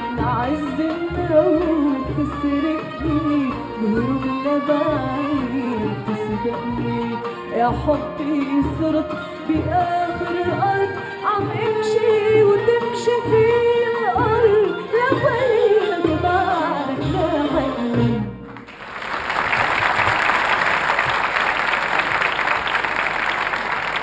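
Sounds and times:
woman singing with orchestra: 0.0s - 18.5s
audience applause: 18.6s - 24.0s.

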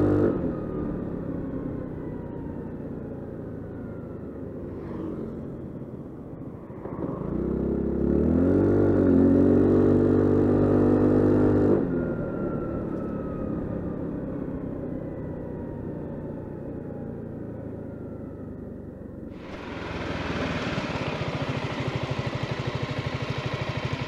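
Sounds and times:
scooter engine accelerating: 19.4s - 24.0s.

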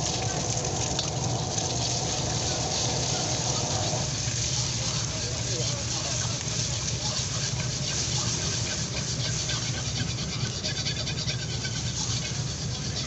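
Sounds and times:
eggs frying with a hiss: 0.0s - 13.0s
steel ladle scraping a wok: 1.8s - 13.0s.

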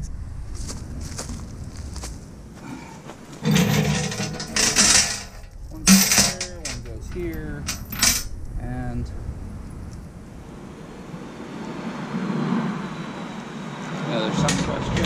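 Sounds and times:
chain links clinking and rattling: 3.4s - 8.3s.

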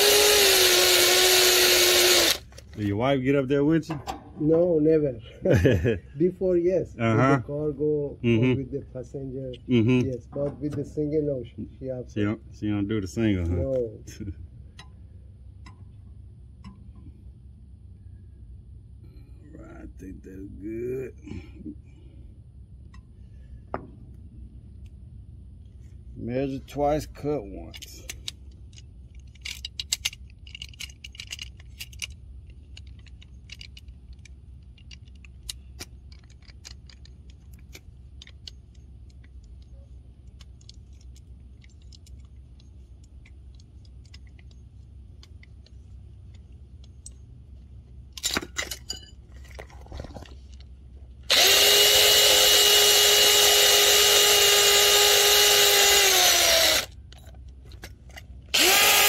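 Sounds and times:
power tool motor running: 0.0s - 2.6s, 51.3s - 56.9s, 58.5s - 59.0s
low steady hum: 0.0s - 59.0s
tool handling: 48.1s - 50.7s, 51.3s - 59.0s.

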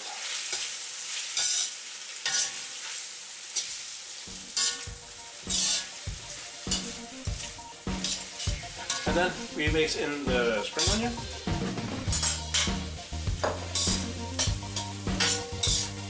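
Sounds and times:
food sizzling in a wok: 0.0s - 16.0s
metal ladle scraping wok: 0.5s - 16.0s.

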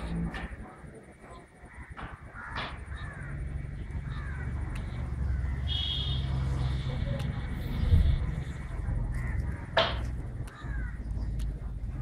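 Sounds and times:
crows cawing: 1.6s - 6.6s, 9.0s - 11.2s
low rumble: 2.8s - 12.0s.

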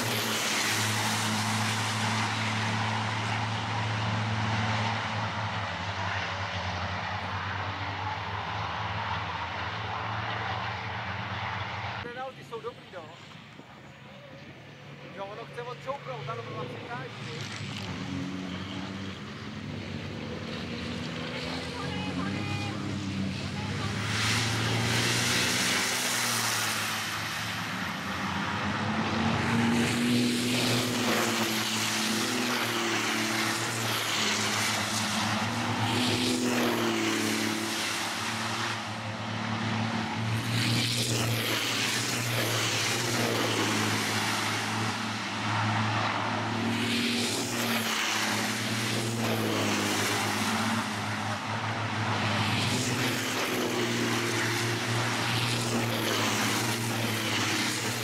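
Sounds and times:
trucks passing by: 0.0s - 58.0s.

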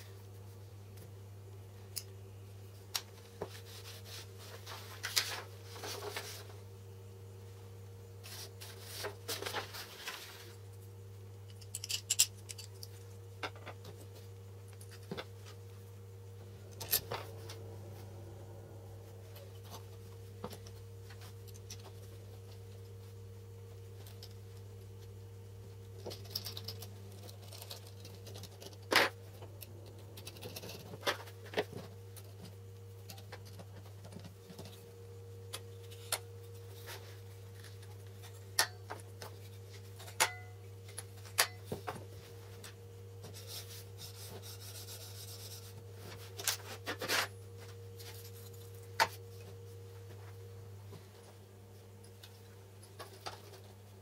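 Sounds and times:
steady low hum: 0.0s - 54.0s
small metal parts clicking: 11.5s - 13.0s, 26.0s - 28.8s.

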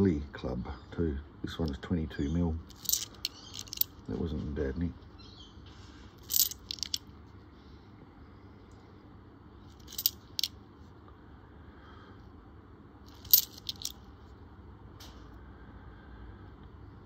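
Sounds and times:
coins clinking: 2.7s - 4.0s, 6.2s - 7.0s, 9.8s - 10.5s, 13.1s - 14.0s.

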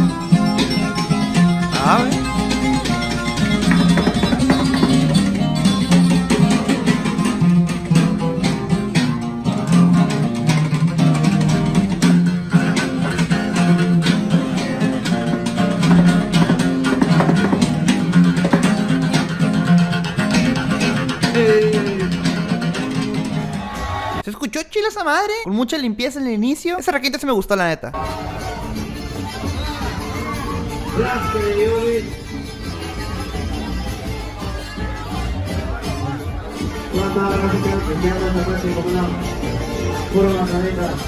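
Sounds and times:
lead guitar picking runs: 0.0s - 23.6s
acoustic bass line: 0.0s - 24.2s, 28.0s - 41.0s
strummed acoustic guitar: 0.0s - 24.2s, 28.0s - 41.0s.

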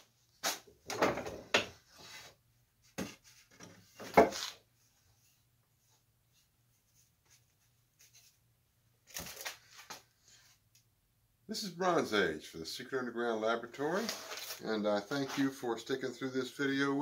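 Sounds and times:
wooden knocks and scrapes: 0.9s - 4.6s.

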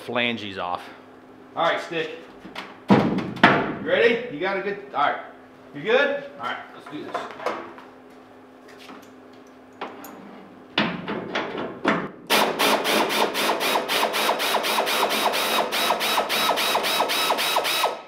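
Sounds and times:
pneumatic ratchet clicking: 12.3s - 18.0s.

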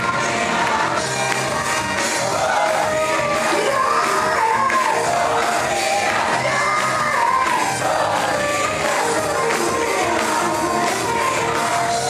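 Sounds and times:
gospel band playing: 0.0s - 12.0s
singers through microphones: 0.0s - 12.0s.

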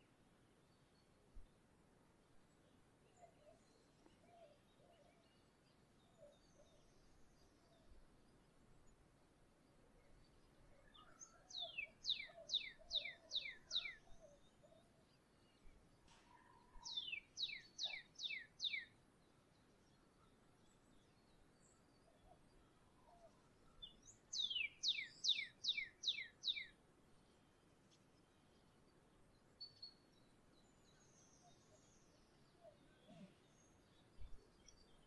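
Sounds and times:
faint bird chirps: 2.6s - 9.0s, 9.6s - 35.0s.

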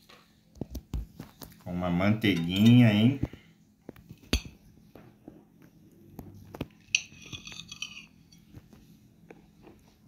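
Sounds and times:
knife clinking on ceramic plate: 2.3s - 3.0s, 4.3s - 4.6s, 6.8s - 8.5s
knife blade scraping plate: 6.9s - 8.4s.

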